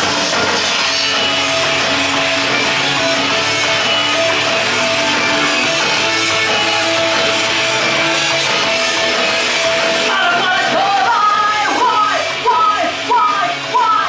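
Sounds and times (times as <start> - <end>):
rock backing music with guitar: 0.0 - 14.0
woman singing into a microphone: 10.1 - 14.0.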